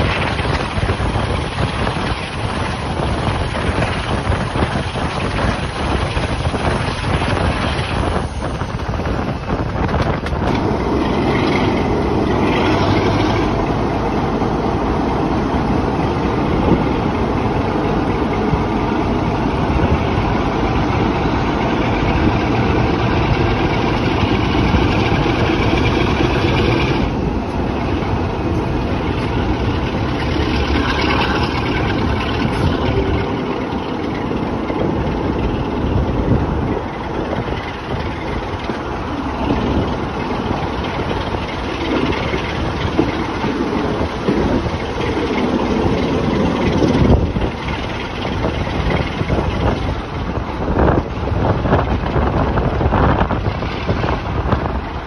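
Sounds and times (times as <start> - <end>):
diesel locomotive engine running: 0.0 - 55.0.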